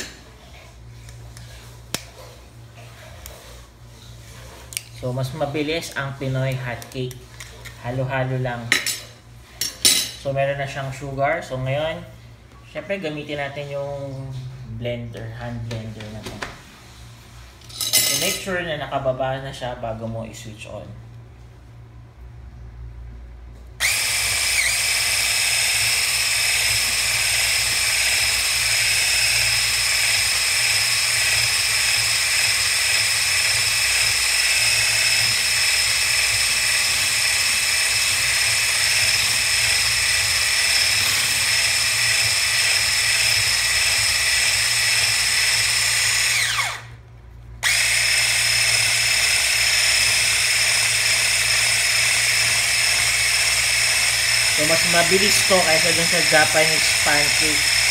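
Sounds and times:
electric hand blender whine: 23.8 - 47.0, 47.6 - 57.9.

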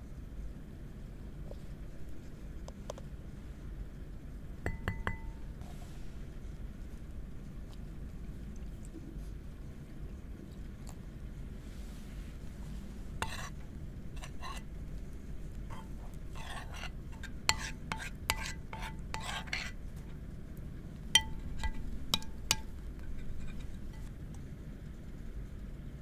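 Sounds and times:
spoon stirring batter in bowl: 12.4 - 14.7, 15.5 - 20.2, 21.2 - 24.2.

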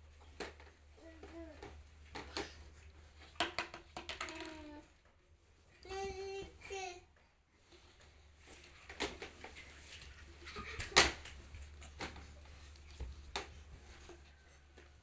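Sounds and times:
plastic objects knocking on tiles: 3.3 - 4.7.

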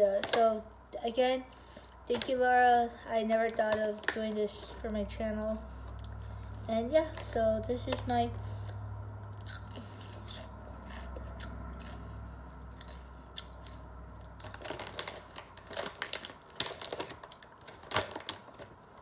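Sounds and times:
low hum: 4.7 - 16.8
mouth chewing crunchy chips: 8.5 - 18.2.

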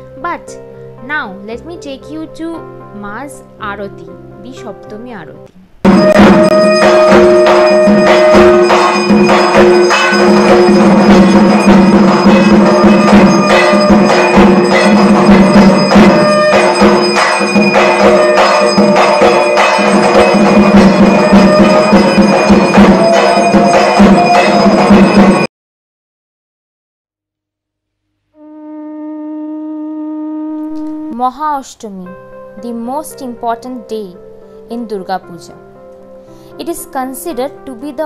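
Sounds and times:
bell-like metallic clangs: 5.8 - 25.5
drums in fast rhythm: 5.8 - 25.5.

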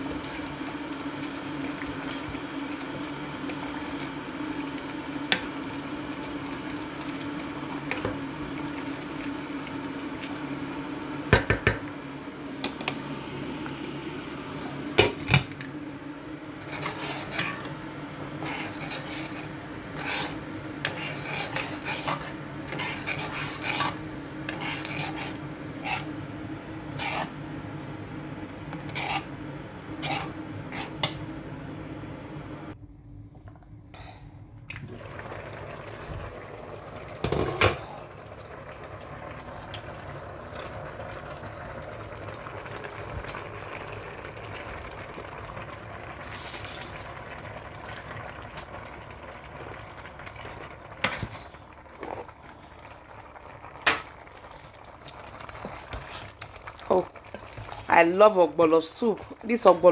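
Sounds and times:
low steady hum: 0.0 - 59.9
spoon scraping saucepan: 16.6 - 17.7, 18.3 - 26.2, 26.9 - 27.4, 28.7 - 29.3, 29.9 - 31.2.

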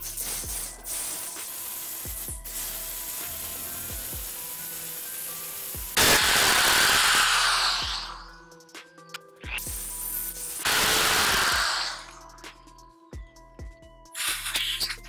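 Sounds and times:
electric drill boring into metal: 5.9 - 8.2, 10.6 - 12.2.

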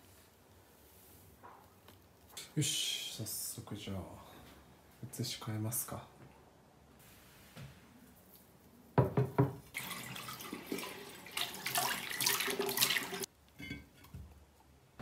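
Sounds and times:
tap water running into vase: 9.4 - 13.3.

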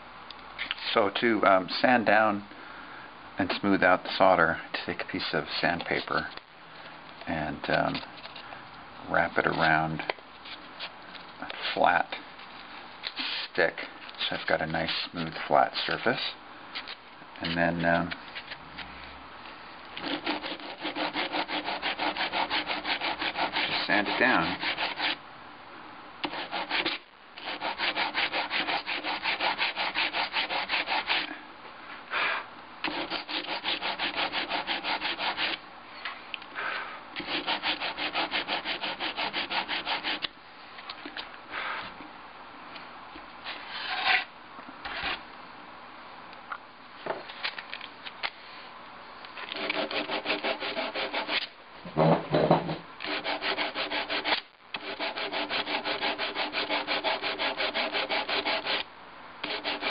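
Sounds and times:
sandpaper rubbing on metal: 20.0 - 25.2, 26.3 - 31.3, 32.9 - 35.6, 37.2 - 40.2, 49.6 - 51.4, 53.1 - 58.8, 59.4 - 59.9
loud knock: 52.0 - 52.8.

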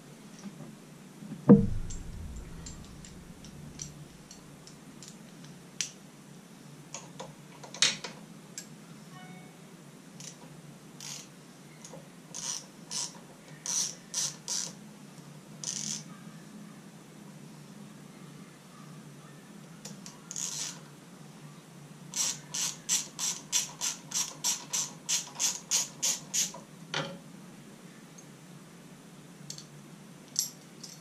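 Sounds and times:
heavy thump: 1.5 - 4.4.

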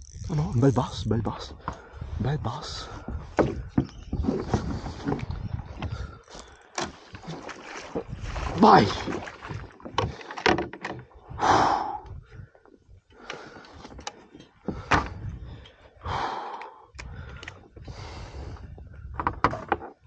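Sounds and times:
knocks and thumps on kayak: 3.0 - 6.1, 6.8 - 11.2, 14.6 - 15.3, 19.1 - 20.0.

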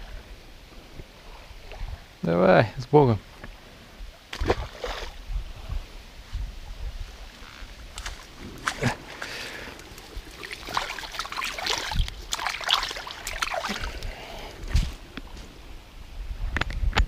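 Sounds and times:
water splashing and trickling: 4.2 - 5.3, 7.0 - 15.1.

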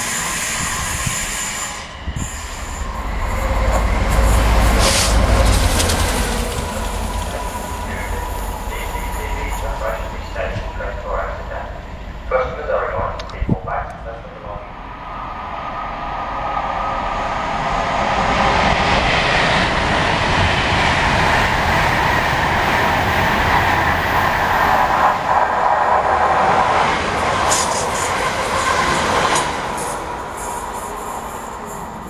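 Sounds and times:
train wheels on rails: 0.0 - 12.3, 16.4 - 32.0
high rattles of passing train: 0.0 - 32.0.

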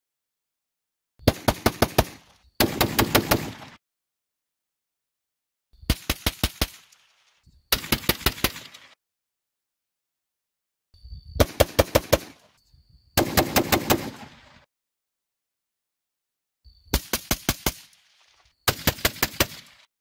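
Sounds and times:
loud rifle shots: 1.2 - 3.8, 7.7 - 8.9, 11.4 - 12.4, 13.2 - 14.4, 18.7 - 19.8.

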